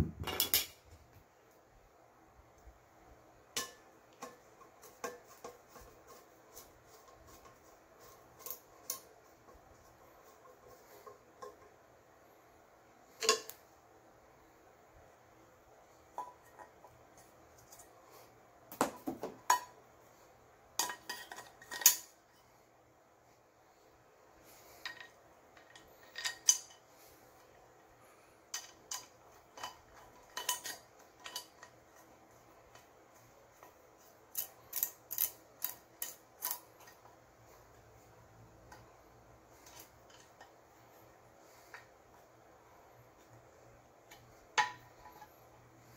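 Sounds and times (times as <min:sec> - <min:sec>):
pots and pans clinking: 0:18.9 - 0:19.8, 0:28.5 - 0:31.8.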